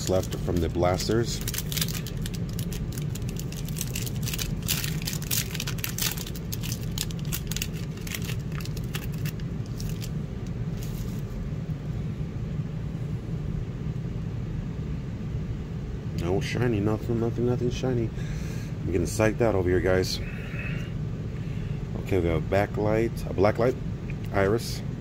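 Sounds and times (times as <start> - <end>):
foil wrapper crinkling and tearing: 0.0 - 11.2
low hum: 0.0 - 25.0.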